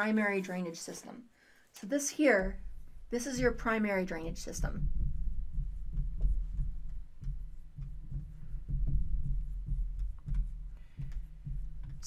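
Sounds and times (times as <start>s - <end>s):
marker stroke ticks: 9.6s - 12.0s.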